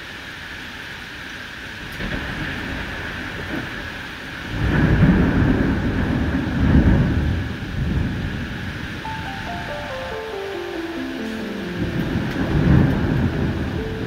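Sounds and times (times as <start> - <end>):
heavy rain falling: 0.0 - 14.0
thunder rumbling: 2.0 - 10.4, 11.2 - 14.0.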